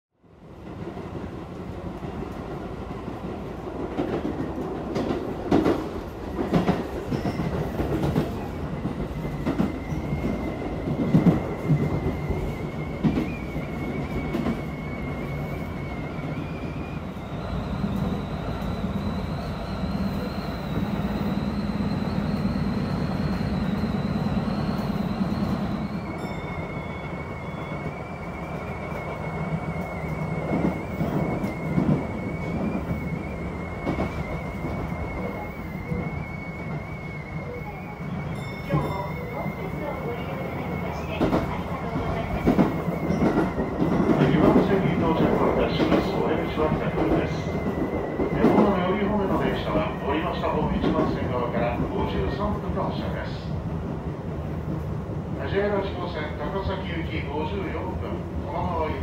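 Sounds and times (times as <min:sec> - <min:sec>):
train rumbling: 0:00.2 - 0:59.0.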